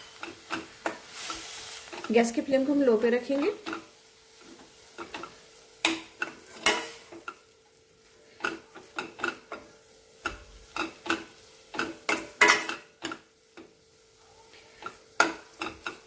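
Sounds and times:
spoon scraping a metal pan: 0.0 - 2.3, 3.0 - 7.4, 8.3 - 13.2.

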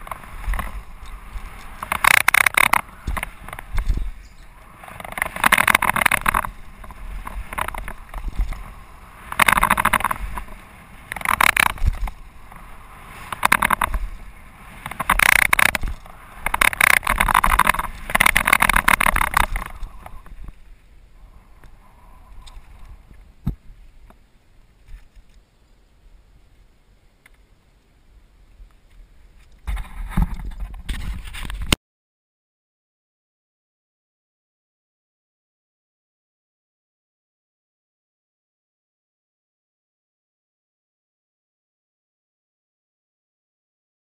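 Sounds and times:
sharp clicks: 0.0 - 8.7, 9.3 - 12.2, 13.2 - 14.0, 14.8 - 20.3
wind rushing on microphone: 0.0 - 24.1
bike tyres on gravel: 0.0 - 25.5.

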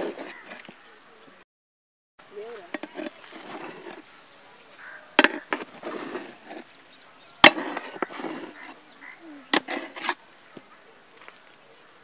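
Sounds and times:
spatula scraping through rice: 0.0 - 0.7, 2.7 - 4.2, 4.8 - 6.8, 7.4 - 8.8, 9.5 - 10.2.

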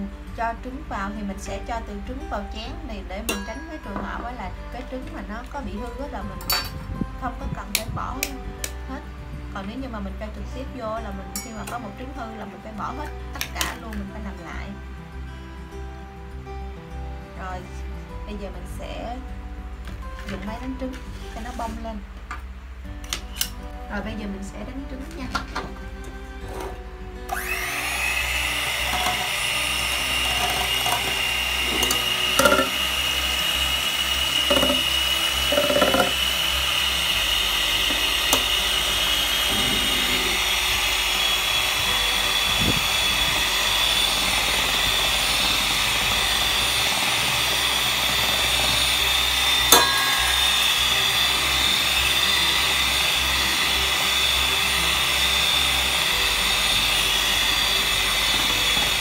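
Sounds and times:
electric hand mixer whine: 26.5 - 59.0.

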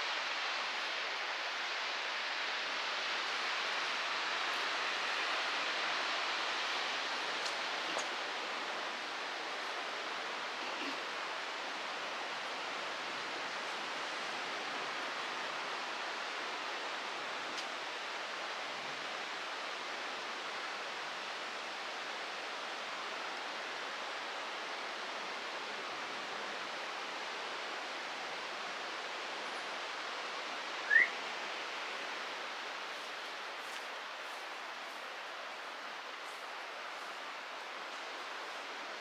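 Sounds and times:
bird chirp: 30.9 - 31.2.

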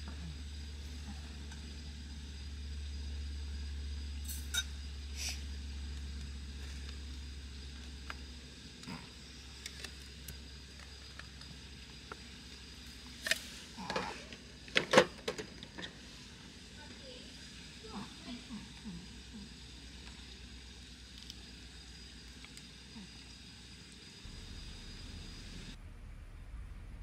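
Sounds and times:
low rumble: 24.2 - 27.0.

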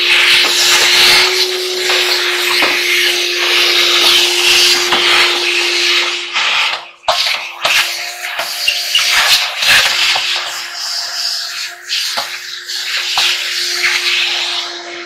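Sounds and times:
vacuum cleaner sucking air: 0.0 - 15.0.

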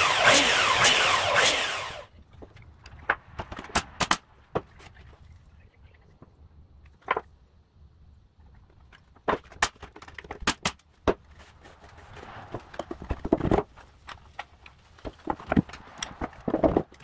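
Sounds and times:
wooden parts tapping: 12.6 - 17.0.

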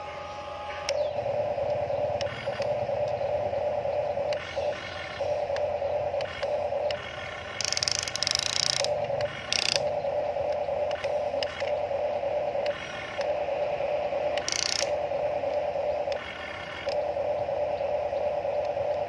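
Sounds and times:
electric motors whining: 0.0 - 19.0
gears grinding: 0.9 - 11.9.

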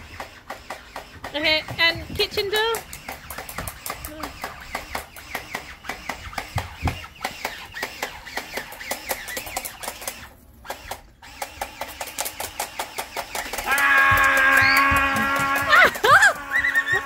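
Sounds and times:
fast even clicking: 0.0 - 17.0
loud steady pitched tone: 13.6 - 17.0.

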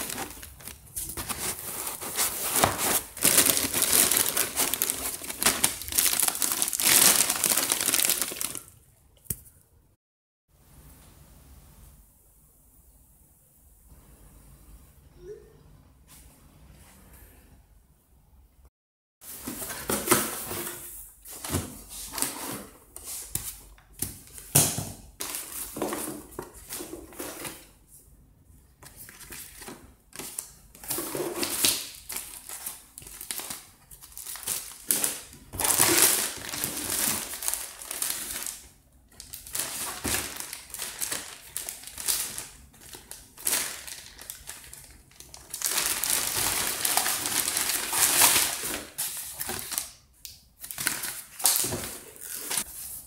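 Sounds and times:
plastic bag and paper crinkling: 0.0 - 8.8, 28.9 - 49.9.

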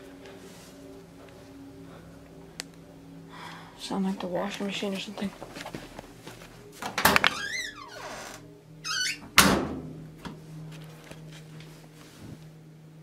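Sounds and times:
steady low hum: 0.0 - 7.0, 8.4 - 13.0
loud bangs from laundry machines: 9.4 - 10.0.

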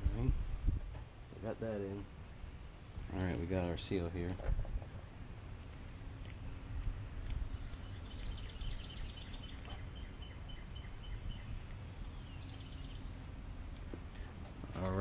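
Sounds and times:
low outdoor rumble: 0.0 - 15.0
bird chirping: 7.1 - 15.0.

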